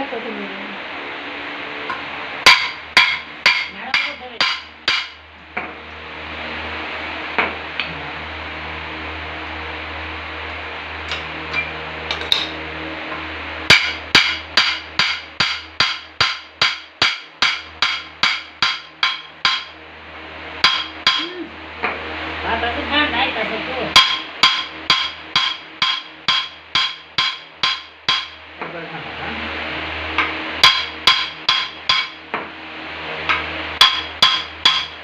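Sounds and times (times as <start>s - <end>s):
hammer striking steel shaft: 1.9s - 5.2s, 13.7s - 19.8s, 20.6s - 22.0s, 23.9s - 28.4s, 30.2s - 32.5s, 33.3s - 35.0s.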